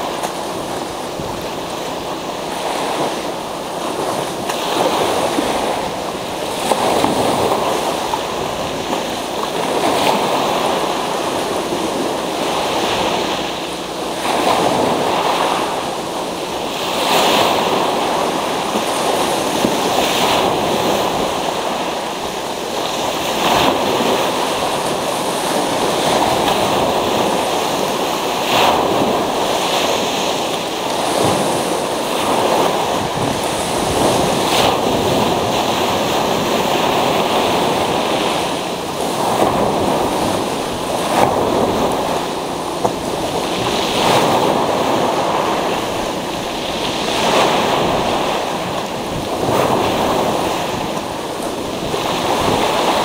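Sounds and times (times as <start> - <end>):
surf washing up pebble beach: 0.0 - 53.0.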